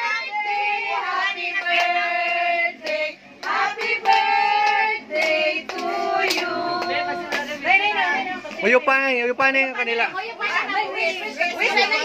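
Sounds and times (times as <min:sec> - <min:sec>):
group singing a birthday tune: 0:00.0 - 0:09.1
hand claps: 0:02.8 - 0:07.5.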